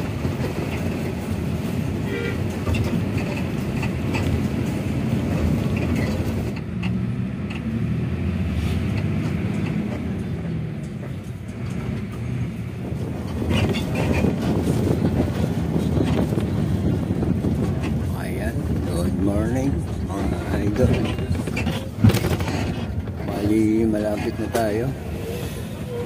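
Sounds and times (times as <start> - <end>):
bus engine drone: 0.0 - 26.0
road rumble: 0.0 - 26.0
rattles: 8.9 - 25.1.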